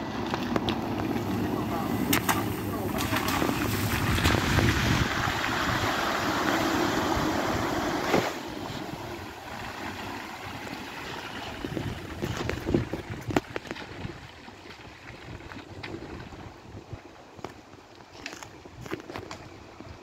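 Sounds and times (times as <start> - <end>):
car splashing through water: 0.0 - 15.9.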